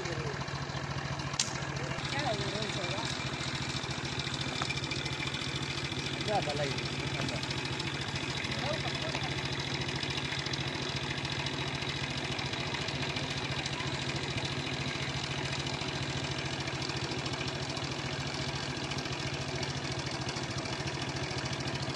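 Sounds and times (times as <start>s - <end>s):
engine idling: 0.0s - 21.9s.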